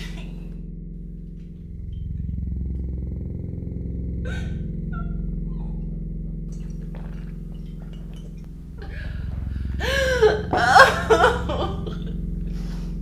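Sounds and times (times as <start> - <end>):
steady low hum: 0.0 - 13.0
woman crying: 4.3 - 5.9, 9.8 - 12.1.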